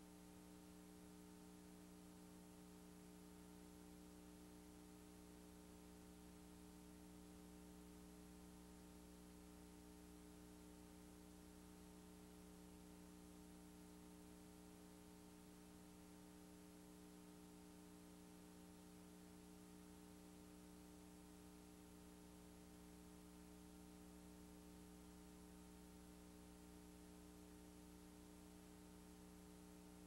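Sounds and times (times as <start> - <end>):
faint electrical hum: 0.0 - 30.0.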